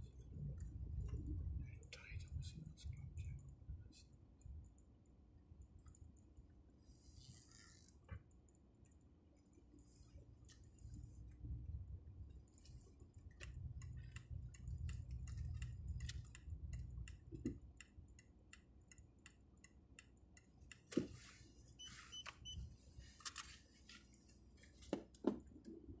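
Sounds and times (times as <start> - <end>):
car engine low rumble: 0.0 - 4.6, 10.0 - 18.1
small clicks and ticks: 0.0 - 21.0.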